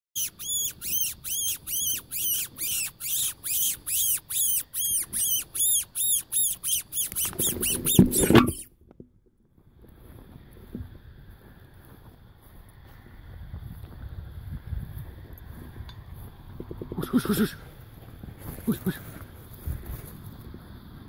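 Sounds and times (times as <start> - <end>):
high-pitched squealing calls: 0.2 - 8.7, 16.9 - 17.7
low rumble on microphone: 8.1 - 21.0.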